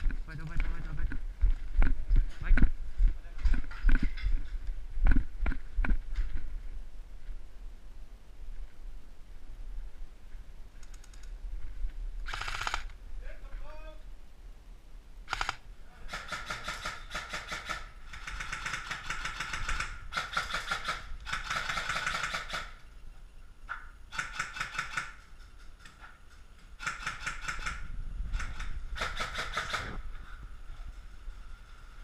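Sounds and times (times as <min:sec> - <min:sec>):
airsoft rifle full-auto bursts: 0:12.2 - 0:12.9, 0:15.3 - 0:22.8, 0:24.1 - 0:25.3, 0:26.8 - 0:30.0.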